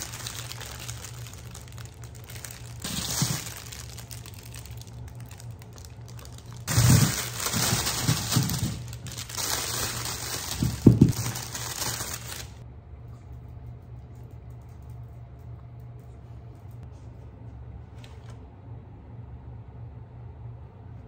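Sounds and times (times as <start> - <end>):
plastic bag crinkling: 0.0 - 12.6
carrots thumping into colander: 6.7 - 11.6.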